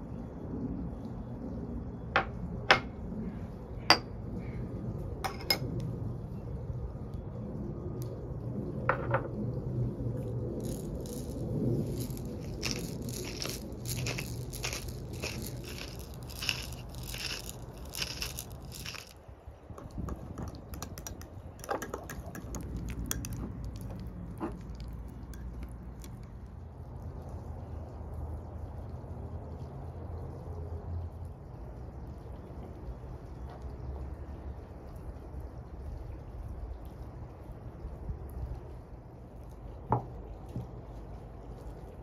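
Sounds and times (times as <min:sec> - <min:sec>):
spatula stirring in glass bowl: 0:10.6 - 0:19.1, 0:19.8 - 0:26.2
pepper mill grinding: 0:10.6 - 0:19.2, 0:19.8 - 0:26.2.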